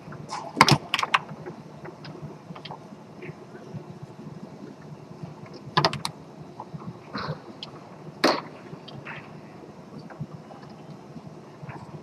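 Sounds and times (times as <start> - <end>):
sharp foosball clacks: 5.8 - 6.1.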